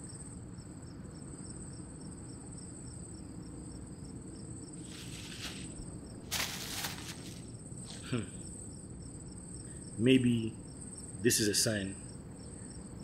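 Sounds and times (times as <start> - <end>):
crickets chirping: 0.0 - 13.0
brief rustle: 4.8 - 8.1.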